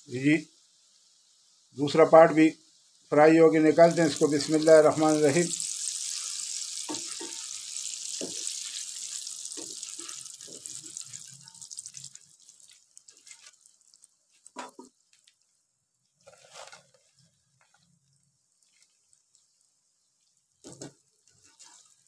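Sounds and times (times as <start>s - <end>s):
okra sizzling in hot oil: 0.0s - 22.0s.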